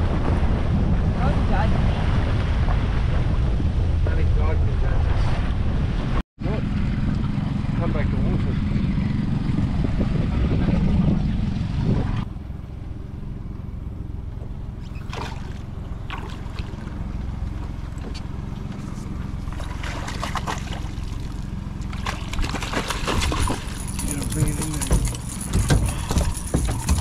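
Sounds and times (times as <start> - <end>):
steady low hum: 2.5 - 27.0
fish splashing at water surface: 14.9 - 17.2, 19.3 - 27.0.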